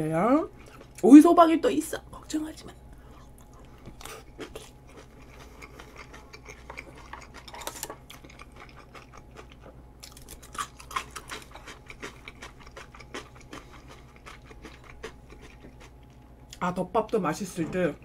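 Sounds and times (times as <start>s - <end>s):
chewing: 3.0s - 16.6s.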